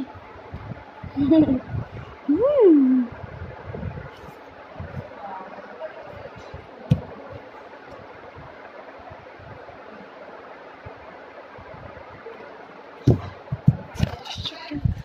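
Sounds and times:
steady background hiss: 0.0 - 15.0
heavy thumps: 6.5 - 7.4, 13.0 - 14.3.

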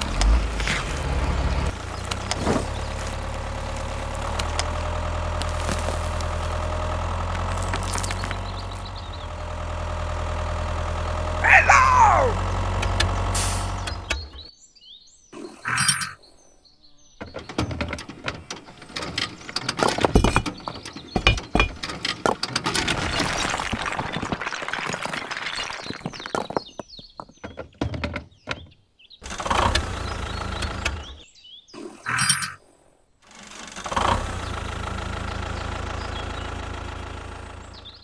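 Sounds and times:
toy bricks clattering onto sand: 1.7 - 8.9, 21.1 - 27.4.

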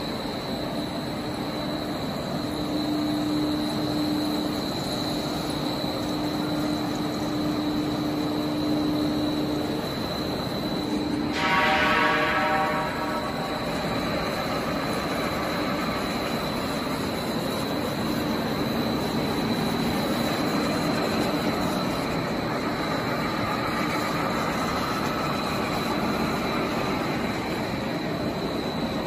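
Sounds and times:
cutting machine hum and hiss: 0.0 - 29.0
high constant whine: 0.0 - 29.0
pitched buzz: 10.9 - 14.4.

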